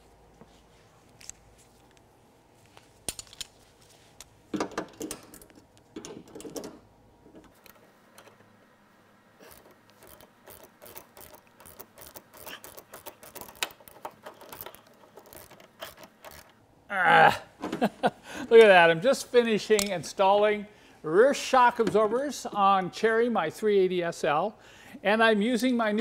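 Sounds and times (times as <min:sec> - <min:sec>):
quick metallic clicks: 0:09.4 - 0:16.6.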